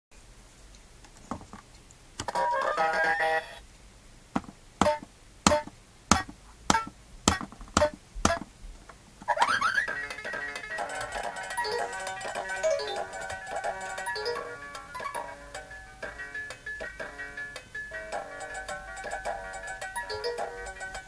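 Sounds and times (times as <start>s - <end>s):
electronic drum sounds: 4.8s - 8.5s.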